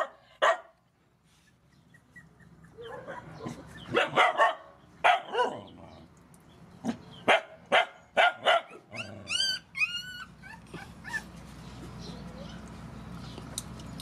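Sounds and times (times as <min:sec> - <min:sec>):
dog barking: 0:00.0 - 0:00.8, 0:02.8 - 0:05.7, 0:07.2 - 0:08.9
dog whining: 0:08.8 - 0:11.4.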